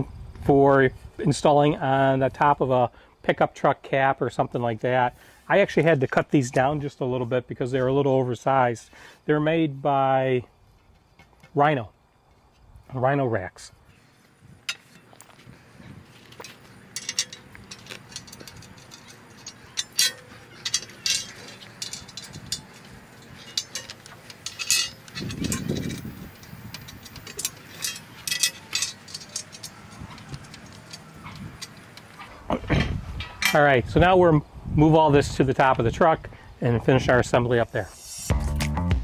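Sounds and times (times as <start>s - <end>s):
small metal parts clinking: 14.7s - 32.3s.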